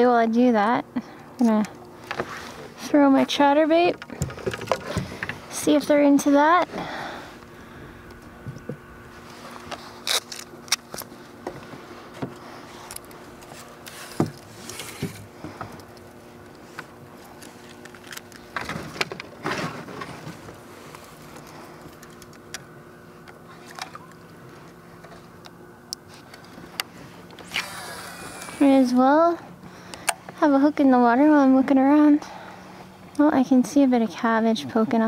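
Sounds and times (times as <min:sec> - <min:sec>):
faint steady hum: 0:00.0 - 0:35.0
fishing tackle clicks and knocks: 0:03.8 - 0:05.4, 0:21.3 - 0:24.4.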